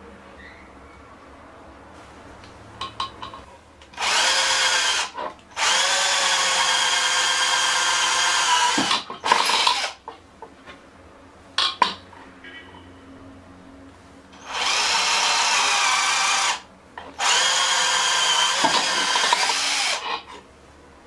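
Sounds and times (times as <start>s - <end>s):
cordless drill boring into chipboard: 4.0s - 10.0s, 14.4s - 16.6s, 17.2s - 20.0s.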